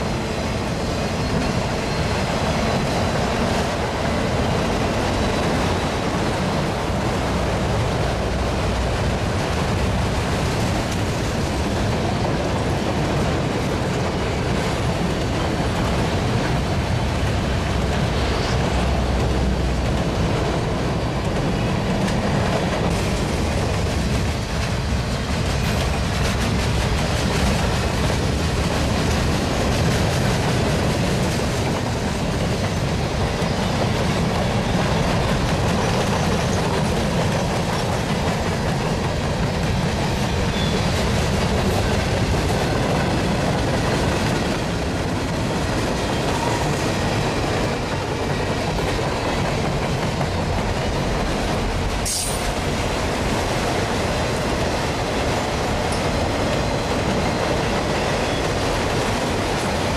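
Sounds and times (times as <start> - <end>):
freight train wheels on rails: 0.0 - 59.9
sharp knock from rail cars: 9.4 - 53.6.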